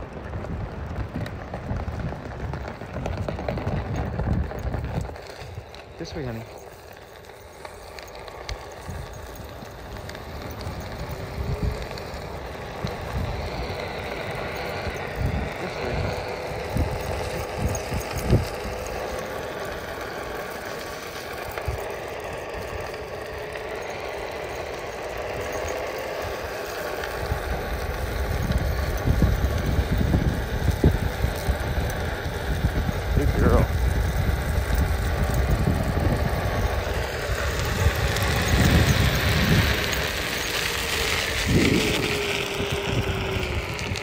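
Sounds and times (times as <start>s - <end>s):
electric motor whine: 0.0s - 44.0s
wheels rolling over asphalt: 0.0s - 44.0s
wind buffeting microphone: 0.0s - 44.0s.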